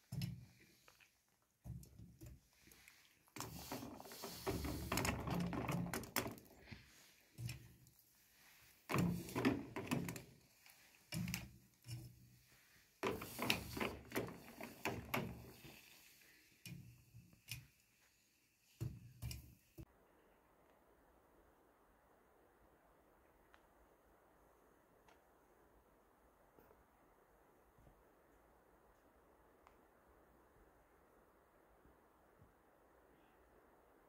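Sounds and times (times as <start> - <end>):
hot pieces hissing in water: 10.2 - 19.4.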